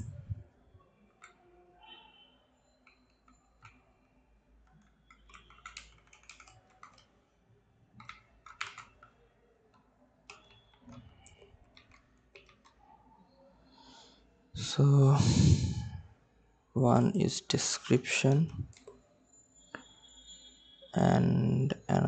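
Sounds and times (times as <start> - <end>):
faint keyboard keystrokes: 4.6 - 7.1, 8.0 - 13.0.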